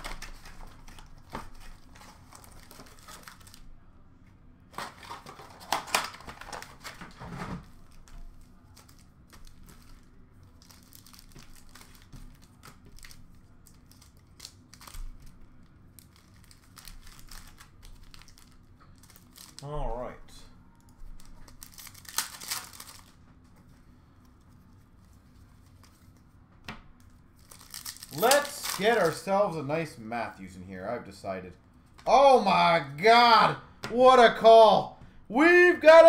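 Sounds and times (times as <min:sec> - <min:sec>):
plastic wrappers crinkling and tearing: 0:00.0 - 0:03.8, 0:04.7 - 0:19.7, 0:21.1 - 0:23.2, 0:27.0 - 0:29.5.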